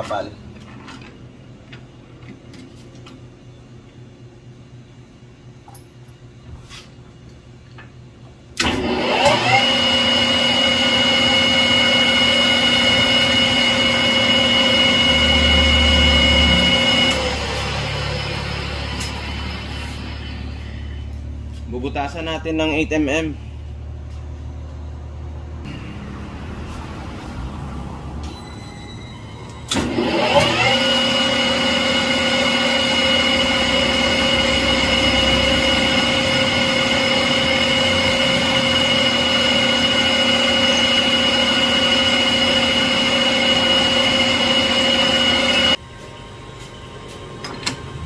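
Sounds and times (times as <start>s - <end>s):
metal lathe whine: 8.6s - 21.0s, 28.2s - 45.8s
low hum: 11.3s - 30.0s.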